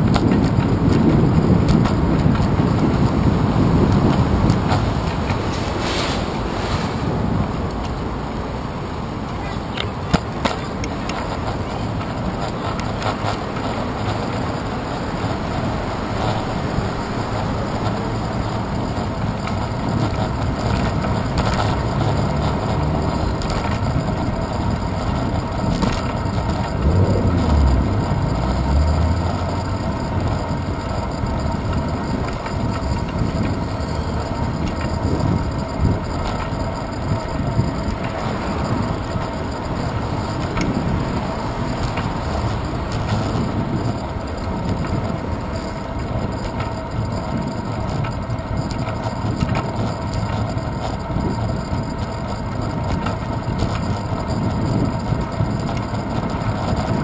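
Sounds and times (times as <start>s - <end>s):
bicycle road noise: 0.0s - 57.0s
car traffic: 0.0s - 57.0s
wind noise: 0.0s - 57.0s
low rumble: 26.3s - 32.0s.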